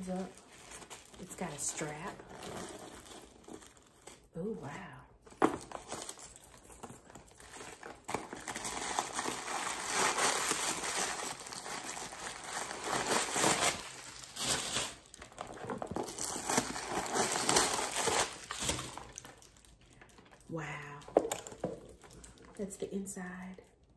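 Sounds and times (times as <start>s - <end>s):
paper crinkling and rustling: 0.0s - 4.2s, 5.7s - 20.5s.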